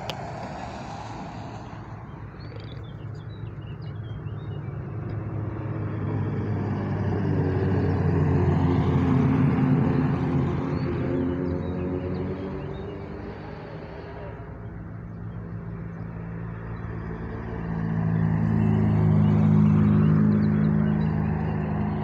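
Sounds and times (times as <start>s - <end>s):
race car engine passing: 0.0s - 2.3s, 5.4s - 14.9s, 16.3s - 22.0s.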